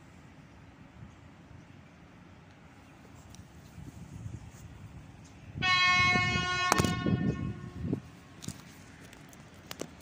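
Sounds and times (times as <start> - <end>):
train horn blast: 5.6 - 8.0.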